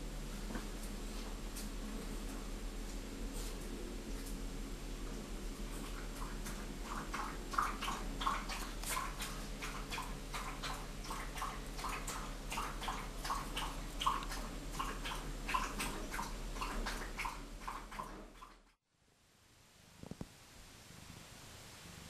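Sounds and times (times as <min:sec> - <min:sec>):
cat licking fur: 0:05.7 - 0:18.1.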